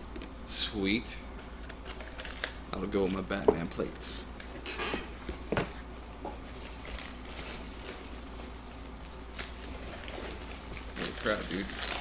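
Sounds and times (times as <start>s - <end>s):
packing paper rustling: 1.5s - 3.4s, 6.5s - 12.0s.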